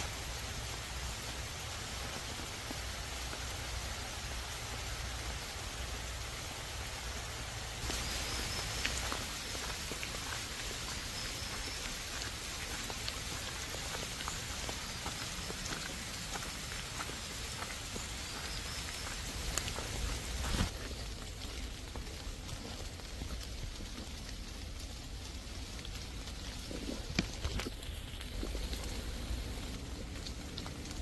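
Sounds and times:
close raindrops ticking: 0.0s - 31.0s
heavy rain on foliage: 0.0s - 31.0s.

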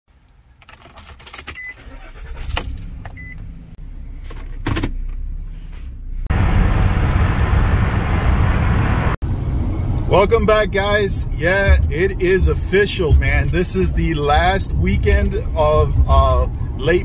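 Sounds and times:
road and engine noise in cabin: 0.1s - 17.0s
car keys jangling: 0.2s - 3.4s
car engine starting and idling: 0.2s - 17.0s.

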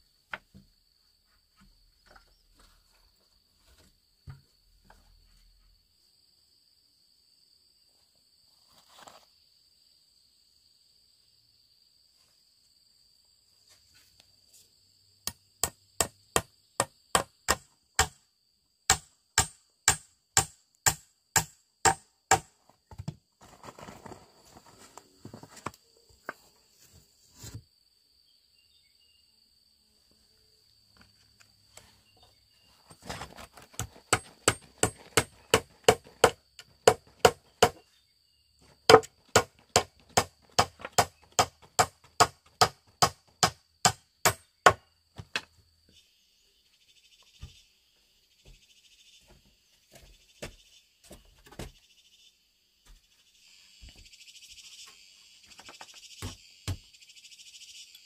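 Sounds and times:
axe head hammering nails into wood: 15.2s - 18.2s, 18.9s - 23.2s, 33.7s - 37.8s, 38.9s - 45.5s.

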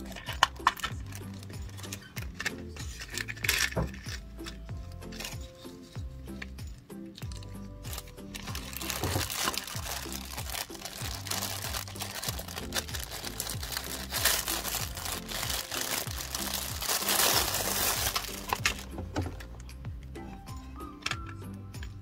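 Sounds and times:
plastic bag crinkling: 0.0s - 4.0s, 7.8s - 18.9s
music with steady beat: 0.0s - 22.0s.

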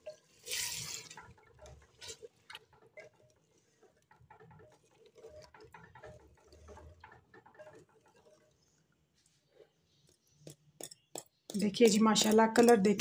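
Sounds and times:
spoon scraping clay pot: 0.0s - 13.0s.

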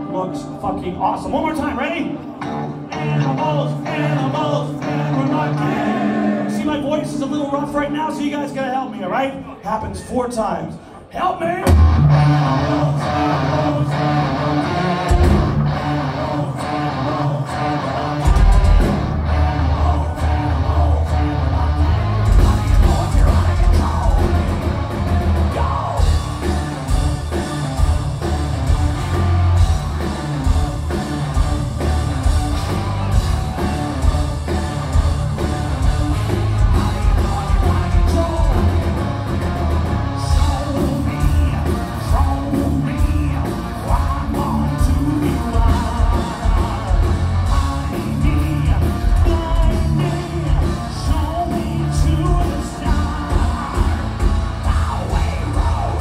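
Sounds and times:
live metal band playing: 0.0s - 10.1s, 11.4s - 56.0s
person singing and shouting: 2.9s - 10.2s, 25.3s - 26.5s.

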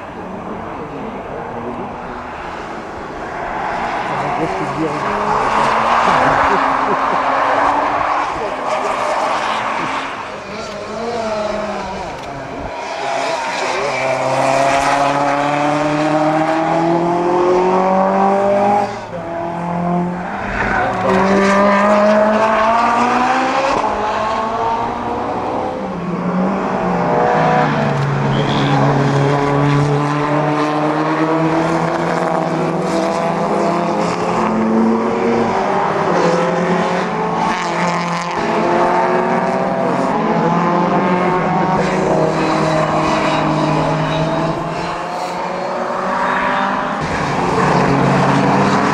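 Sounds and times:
racing cars passing at full throttle: 0.0s - 48.9s.

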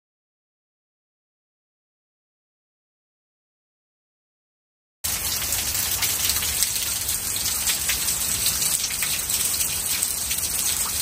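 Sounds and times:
steady rain with drop hits: 5.0s - 11.0s.

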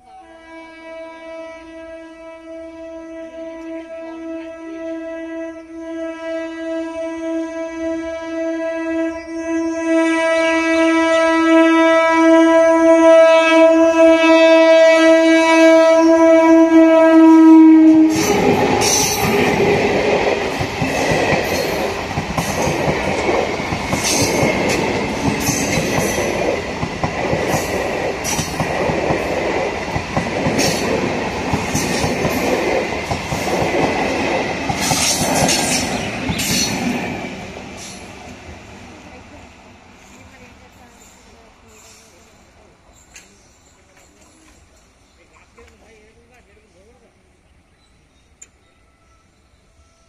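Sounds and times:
train horn: 0.0s - 38.0s, 48.6s - 50.0s
train wheels clattering over rail joints: 18.2s - 38.3s.

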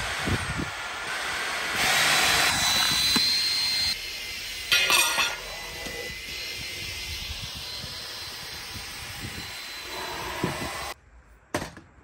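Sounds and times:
vacuum cleaner running: 0.0s - 11.0s
vacuum rasp: 0.0s - 11.0s.

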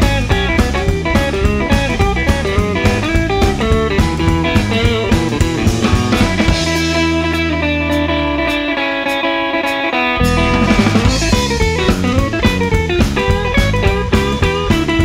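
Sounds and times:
blues-rock band music: 0.0s - 15.0s
electric guitar playing: 0.0s - 15.0s.

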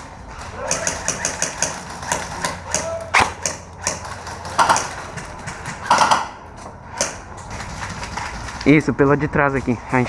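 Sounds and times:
airsoft gun shots: 0.7s - 7.2s.

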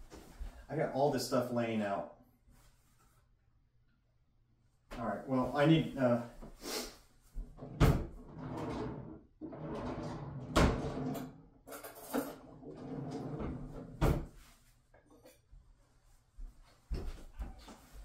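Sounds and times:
cupboard doors and drawers shutting: 7.5s - 11.4s, 12.2s - 14.4s.

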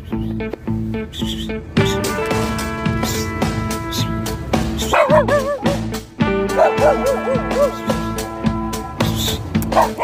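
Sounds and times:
background music with steady beat: 0.0s - 10.0s
dog whining: 4.9s - 5.8s, 6.6s - 8.0s.

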